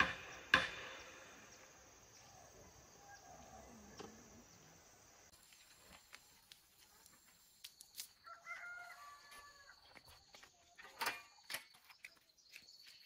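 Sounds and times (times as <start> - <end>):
distant rooster crowing: 8.2 - 10.1.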